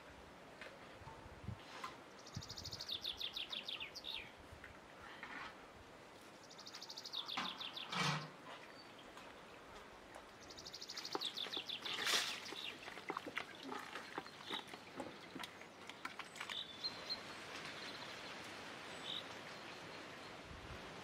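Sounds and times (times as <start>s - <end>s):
small birds chirping: 2.1s - 4.4s, 6.2s - 20.4s.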